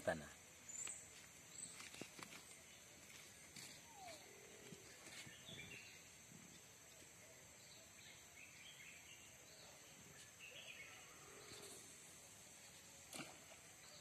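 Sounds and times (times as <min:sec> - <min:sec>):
faint bird chirps: 0:03.6 - 0:06.1, 0:06.9 - 0:12.0.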